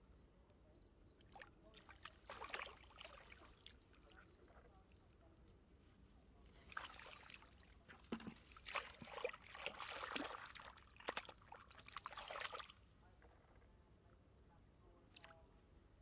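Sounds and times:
hands splashing in muddy water: 1.3 - 3.8, 6.7 - 12.8.

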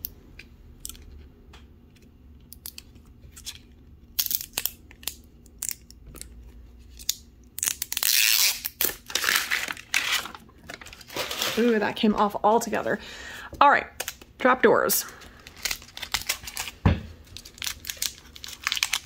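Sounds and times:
plastic wrapper tearing and crinkling: 2.7 - 6.2, 6.9 - 12.0, 15.3 - 19.0.

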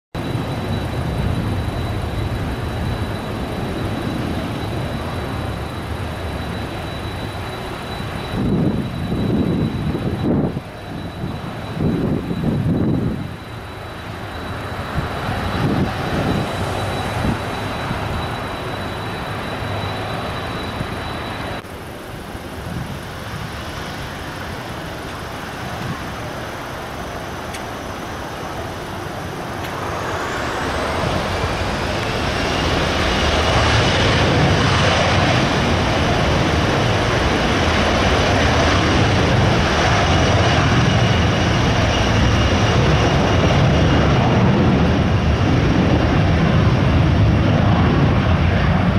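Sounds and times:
jet engines whining and roaring: 0.1 - 48.9.

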